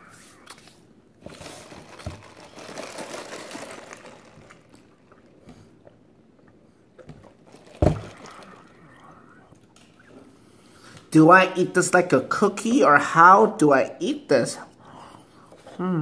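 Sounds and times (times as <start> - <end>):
plastic cup set down thump: 7.1 - 8.2.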